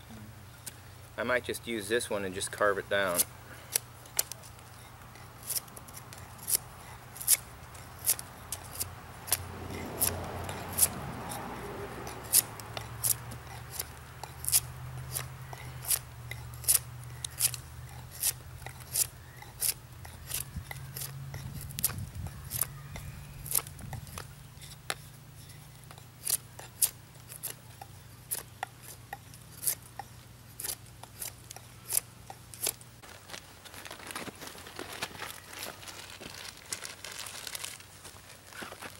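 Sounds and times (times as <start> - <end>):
knife shaving wood: 3.0 - 32.8.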